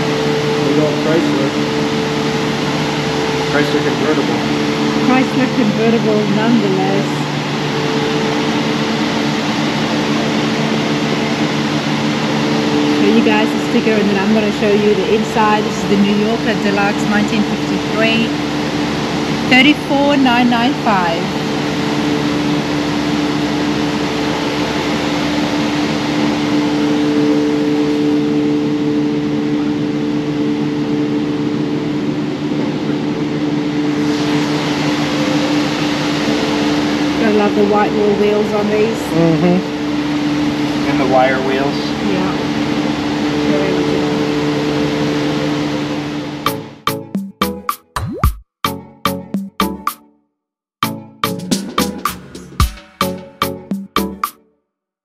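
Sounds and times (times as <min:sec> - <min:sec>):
steady tones: 0:00.0 - 0:22.2, 0:50.9 - 0:54.1
air handling system hum: 0:00.0 - 0:47.3, 0:51.2 - 0:53.9.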